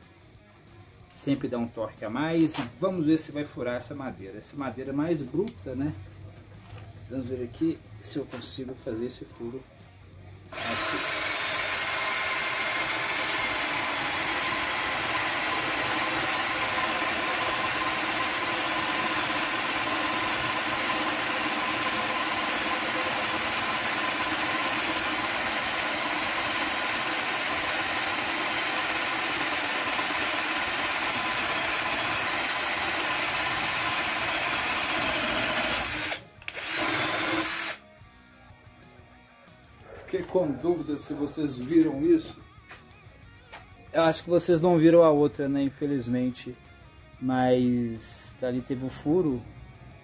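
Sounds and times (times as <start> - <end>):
cordless drill boring into wood: 10.5 - 37.8.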